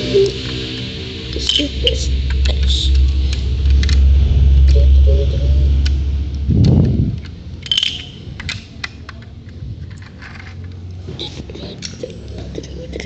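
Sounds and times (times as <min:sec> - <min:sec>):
short low rumble: 0:00.0 - 0:10.2
plastic pieces clattering on tile: 0:07.6 - 0:10.8.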